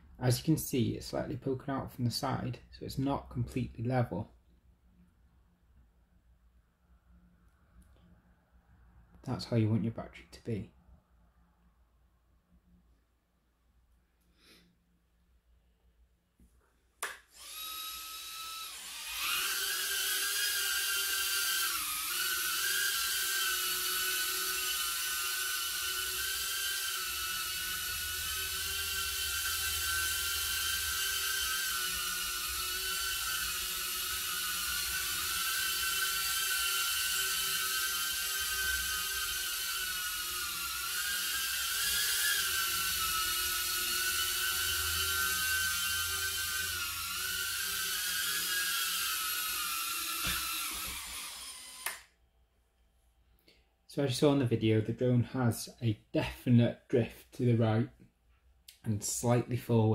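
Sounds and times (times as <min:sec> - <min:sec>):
quadcopter motors whining: 0:17.3 - 0:52.1.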